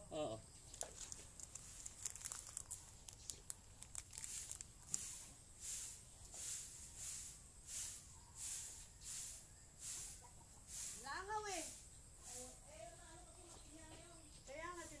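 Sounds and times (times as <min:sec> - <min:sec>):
plastic packet crinkling: 0:00.6 - 0:05.2
soft swishing hiss: 0:04.2 - 0:15.0.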